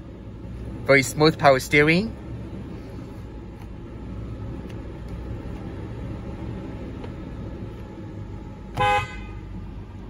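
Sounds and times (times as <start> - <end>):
car engine idling: 0.0 - 10.0
car horn: 8.7 - 9.6.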